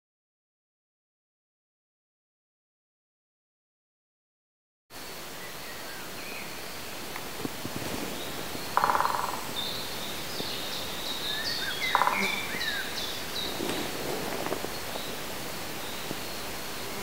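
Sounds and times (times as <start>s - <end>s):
bird chirps: 8.0s - 15.2s
rattling bird call: 8.8s - 9.6s, 11.8s - 12.6s.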